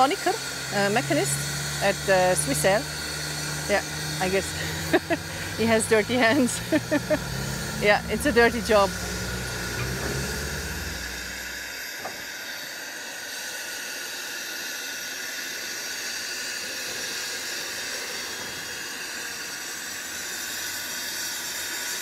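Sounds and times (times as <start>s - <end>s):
steam hissing: 0.0s - 22.0s
low rumble: 2.4s - 11.8s.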